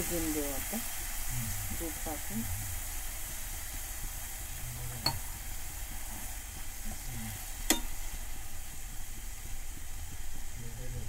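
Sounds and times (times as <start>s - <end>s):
beetroot sizzling in a pan: 0.0s - 11.0s
spatula knocking against pan: 7.7s - 8.0s.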